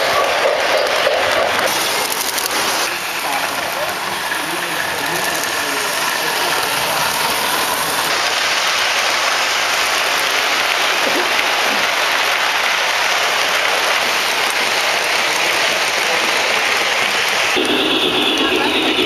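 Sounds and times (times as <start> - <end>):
model trains rolling: 0.0 - 19.0.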